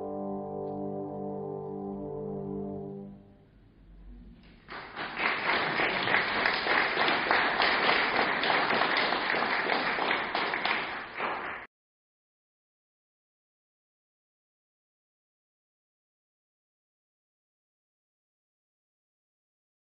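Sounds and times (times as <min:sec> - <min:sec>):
trombones holding a chord: 0:00.0 - 0:04.4
audience applauding: 0:04.5 - 0:11.7.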